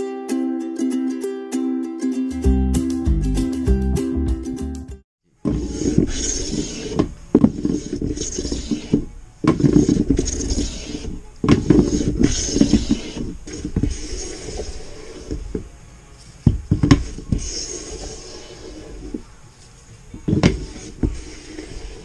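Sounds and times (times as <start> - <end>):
plane rasping along wood: 5.5 - 15.6, 16.7 - 19.2, 20.3 - 22.0.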